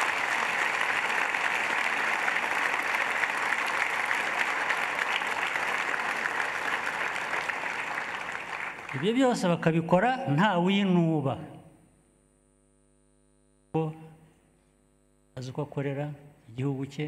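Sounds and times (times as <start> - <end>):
audience applause: 0.0 - 9.4.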